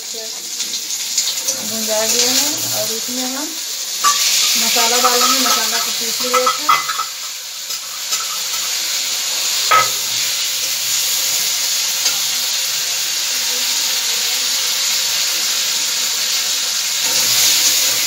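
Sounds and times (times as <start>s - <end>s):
vegetables sizzling in hot oil: 0.0s - 18.0s
steel spatula stirring: 4.0s - 9.0s, 9.7s - 10.4s
metal clink: 9.7s - 10.1s.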